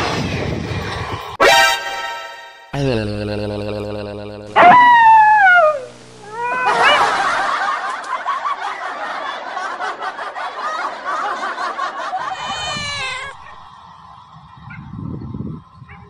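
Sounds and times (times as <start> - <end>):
high-pitched chattering: 2.7 - 6.6
loud cry sliding down in pitch: 4.5 - 7.2, 12.3 - 13.6.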